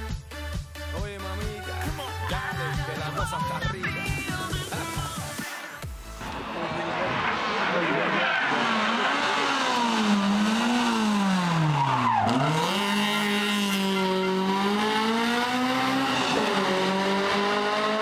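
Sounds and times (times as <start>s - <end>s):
rally car engine revving: 6.2s - 18.0s.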